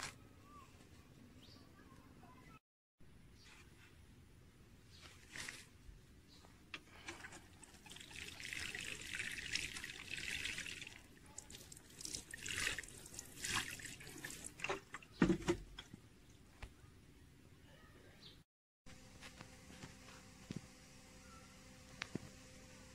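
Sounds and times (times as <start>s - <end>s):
water sprinkling from watering can: 7.2s - 14.8s
water dripping: 7.6s - 15.1s.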